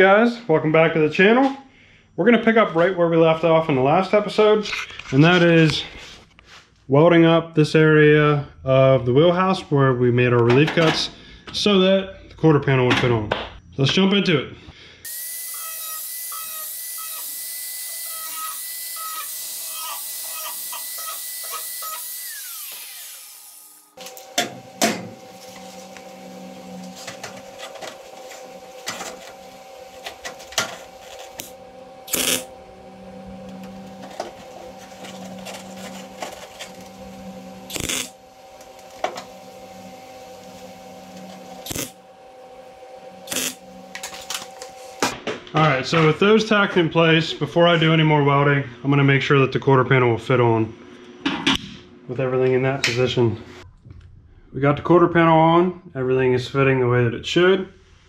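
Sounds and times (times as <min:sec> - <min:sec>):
angle grinder whining: 0:15.0 - 0:45.2
welder humming: 0:15.0 - 0:45.2
tack weld crackles: 0:37.7 - 0:39.0.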